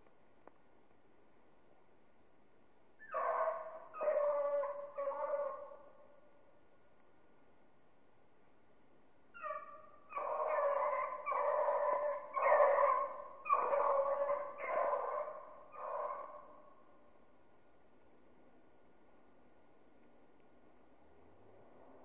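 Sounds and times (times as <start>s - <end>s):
beagle yelping: 3.0s - 5.7s, 9.4s - 16.4s
beagle baying: 3.0s - 5.8s, 9.4s - 16.6s.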